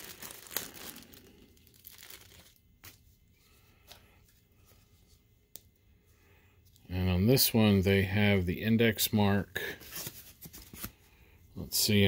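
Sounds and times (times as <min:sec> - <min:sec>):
plastic bag crinkling: 0:00.0 - 0:03.1.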